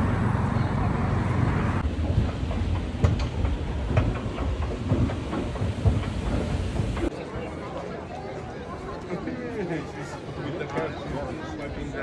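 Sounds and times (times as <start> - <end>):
vehicle low rumble: 0.0 - 7.1
sharp clacks and knocks: 1.8 - 7.1.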